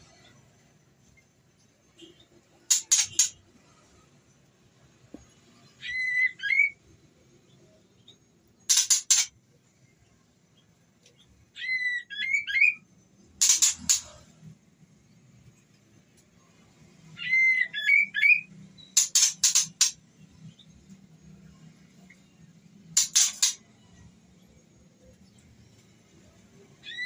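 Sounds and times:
bird harsh call notes: 0:02.7 - 0:03.4.

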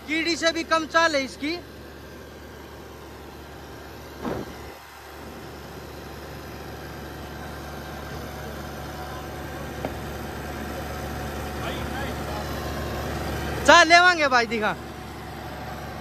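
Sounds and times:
tractor diesel engine running: 0:00.0 - 0:16.0
brief thump: 0:04.2 - 0:04.5.

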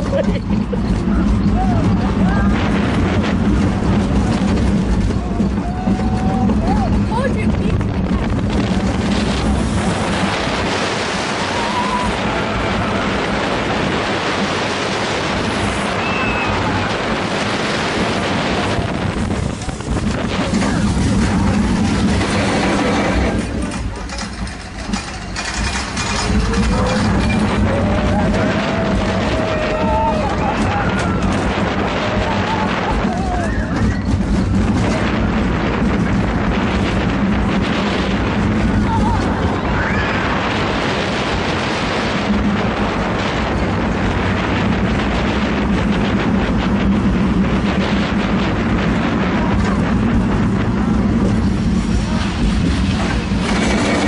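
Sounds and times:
roller coaster wheels rumbling: 0:00.0 - 0:54.0
wind on microphone: 0:00.0 - 0:54.0
rapid rattling: 0:17.8 - 0:54.0.

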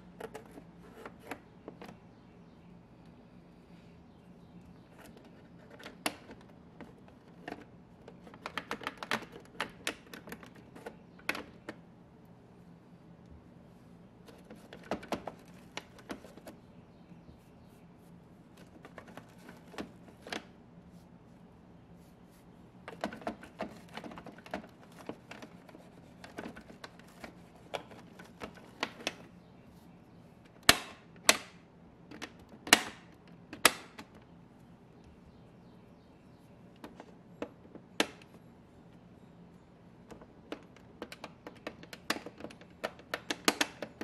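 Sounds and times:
plastic buttons clicking and rattling: 0:05.0 - 0:11.8, 0:14.3 - 0:16.6, 0:18.6 - 0:20.5, 0:22.8 - 0:29.3, 0:40.0 - 0:44.0.

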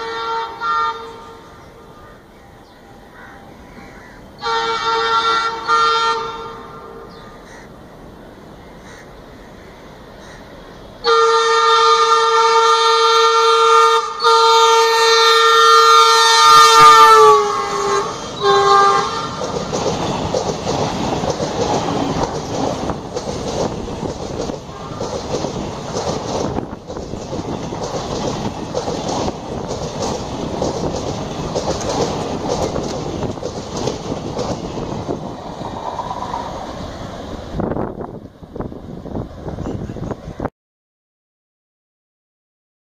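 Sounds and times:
locomotive horn blast: 0:00.0 - 0:01.6, 0:04.4 - 0:07.2, 0:11.0 - 0:19.4
train wheels clattering over rail joints: 0:18.1 - 0:37.3.

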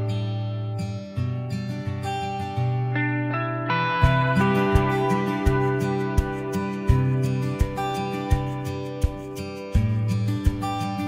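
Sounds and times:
held guitar-like notes: 0:00.0 - 0:11.0
steady beat: 0:04.0 - 0:10.9.

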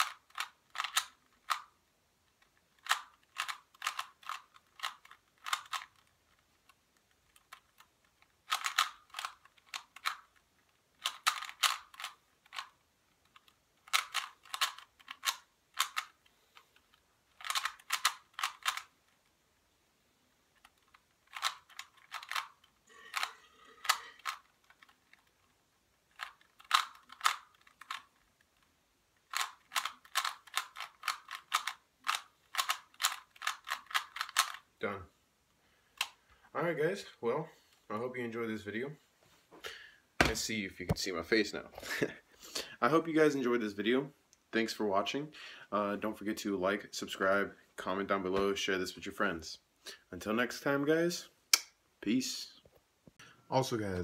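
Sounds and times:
puzzle cube clicking: 0:00.0 - 0:19.4, 0:20.4 - 0:34.8, 0:36.0 - 0:36.3.

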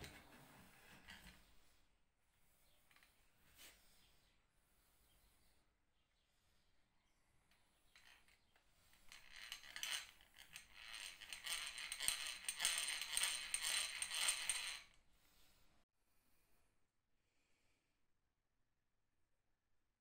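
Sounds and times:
hand drill gears rattling: 0:07.9 - 0:15.0.

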